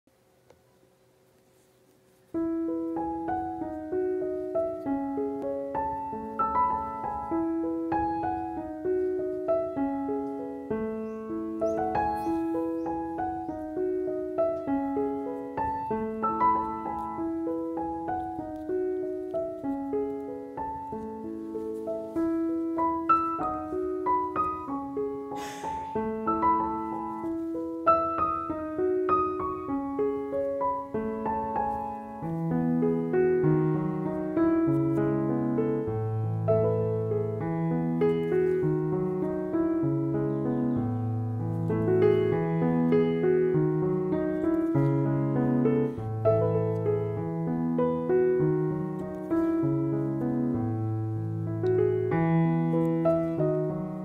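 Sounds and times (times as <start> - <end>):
piano music: 2.2 - 54.0.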